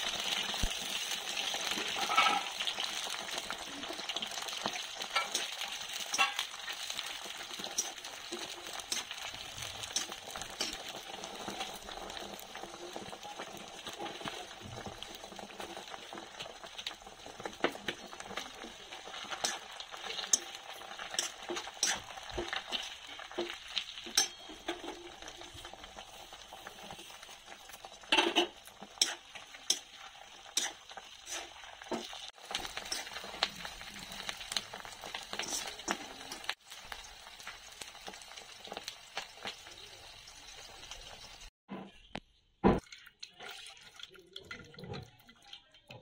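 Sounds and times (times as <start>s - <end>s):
frying in oil sizzling: 0.0s - 41.6s
spoon clinking and scraping pan: 1.7s - 3.3s, 4.6s - 12.2s, 17.4s - 26.0s, 28.0s - 33.5s, 34.5s - 36.6s.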